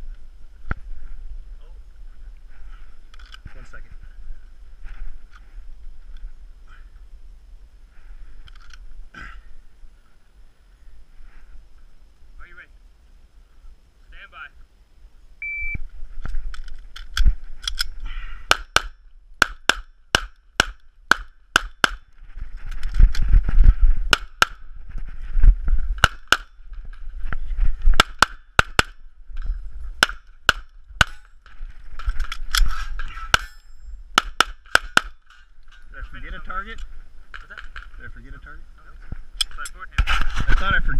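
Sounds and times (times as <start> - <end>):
rustling movement: 0.0 - 6.5, 22.0 - 28.0, 29.0 - 34.1
shot timer beep: 15.4 - 15.8
handgun firing: 18.5 - 22.0, 24.1 - 24.6, 26.0 - 26.5, 27.9 - 29.0, 30.0 - 31.3, 34.2 - 35.2.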